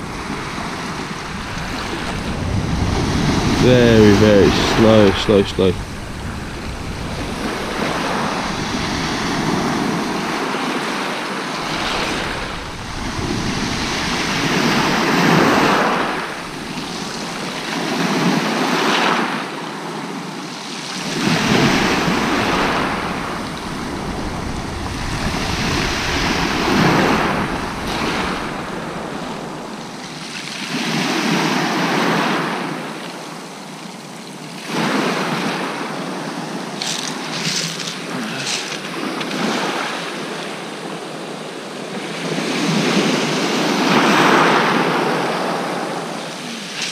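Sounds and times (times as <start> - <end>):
wind on microphone: 0.0 - 10.8, 11.5 - 18.3, 21.1 - 30.2
sea waves breaking on beach: 0.0 - 46.9.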